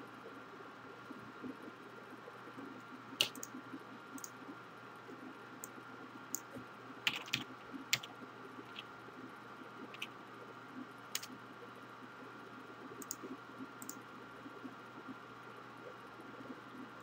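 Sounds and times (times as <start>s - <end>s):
faint steady hum: 0.0s - 17.0s
computer mouse clicks: 3.2s - 3.6s, 4.2s - 4.4s, 5.6s - 8.1s, 8.7s - 8.9s, 9.9s - 10.1s, 11.1s - 11.4s, 13.0s - 14.0s
keyboard key presses: 3.2s - 3.6s, 6.4s - 8.1s, 9.9s - 10.1s, 11.2s - 11.4s.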